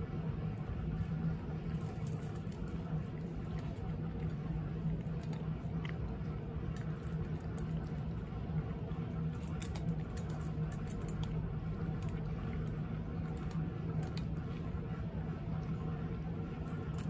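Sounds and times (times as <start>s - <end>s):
steady low hum: 0.0s - 17.0s
cat crunching dry kibble: 1.4s - 14.8s, 16.5s - 17.0s.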